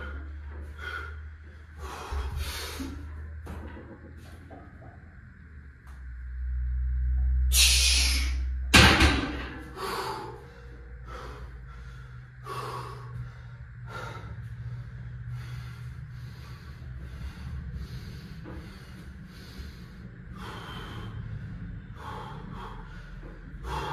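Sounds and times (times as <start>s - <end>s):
man breathing hard and gasping: 0.0s - 3.1s, 9.6s - 23.9s.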